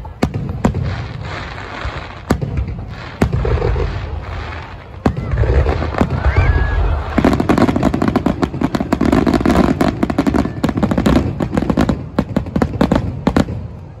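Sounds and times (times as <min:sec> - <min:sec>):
firework crackling pops: 0:00.0 - 0:14.0.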